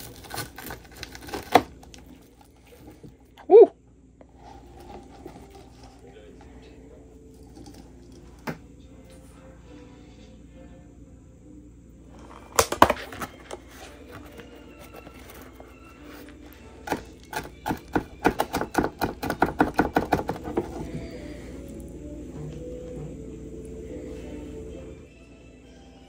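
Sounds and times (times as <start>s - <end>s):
knife chopping on plastic board: 16.8s - 20.9s.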